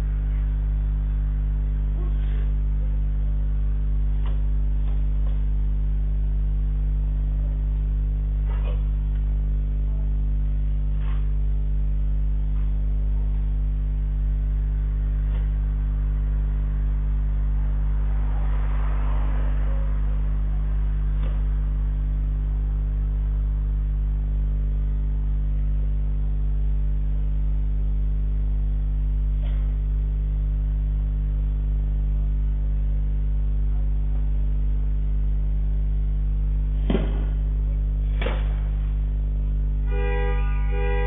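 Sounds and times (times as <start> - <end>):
low electrical hum: 0.0 - 41.0
sharp knocks: 36.8 - 37.4.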